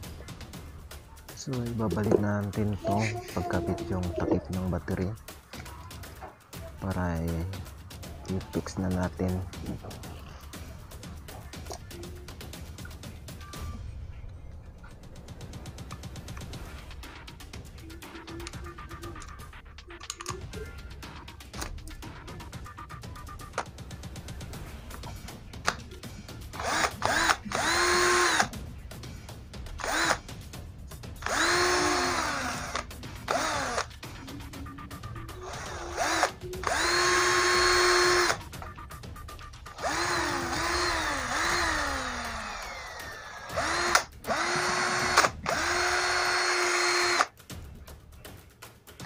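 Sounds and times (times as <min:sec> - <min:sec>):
cordless drill motor whine: 0:26.6 - 0:28.5, 0:29.8 - 0:30.2, 0:31.2 - 0:33.9, 0:35.4 - 0:38.4, 0:39.8 - 0:47.3.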